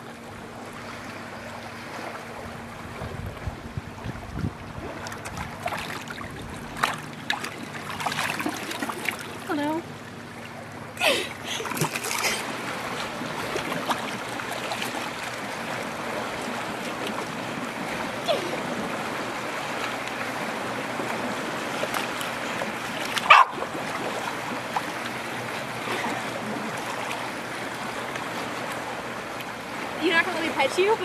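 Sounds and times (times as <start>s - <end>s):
water lapping against wooden dock: 0.0s - 31.0s
dog yelping: 23.3s - 23.6s.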